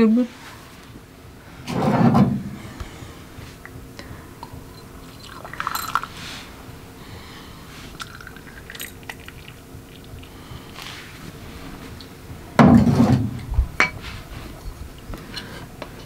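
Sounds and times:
tableware clicking and clinking: 4.8 - 6.1.

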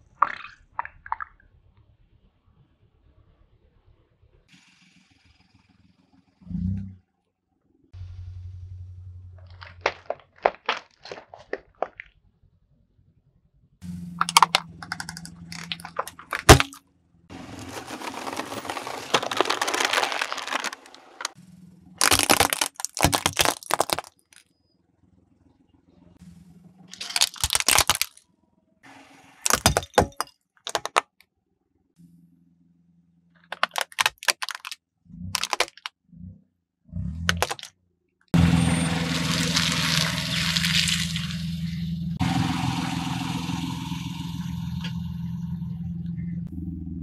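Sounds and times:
low hum: 8.0 - 9.8, 38.4 - 47.0
car tyre crushing plastic: 9.3 - 12.1, 14.2 - 21.4, 22.0 - 24.5, 26.9 - 28.2, 29.4 - 31.1, 33.4 - 34.8, 35.4 - 35.9, 37.2 - 37.7, 39.1 - 41.6.

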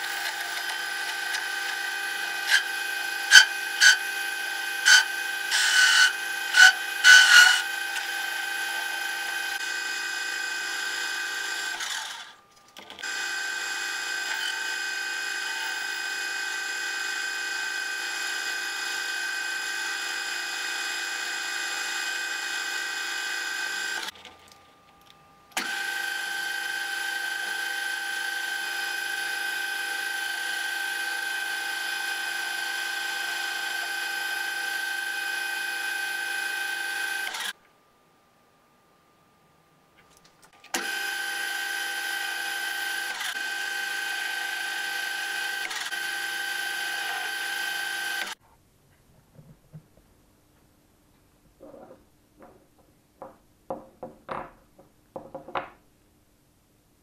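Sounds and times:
metal lathe whining: 0.0 - 12.4, 25.6 - 37.5, 40.7 - 48.4.

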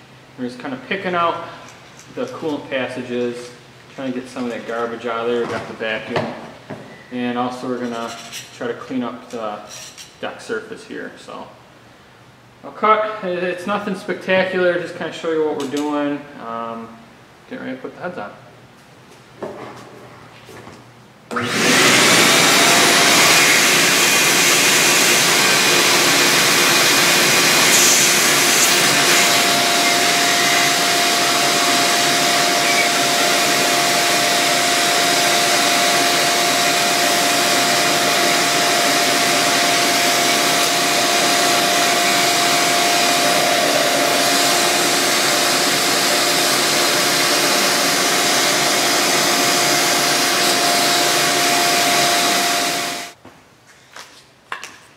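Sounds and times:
shop vacuum running: 21.3 - 53.2.

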